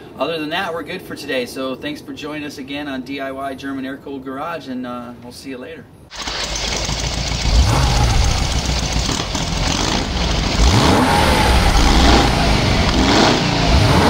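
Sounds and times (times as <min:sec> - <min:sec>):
engine revving: 0:06.1 - 0:14.0.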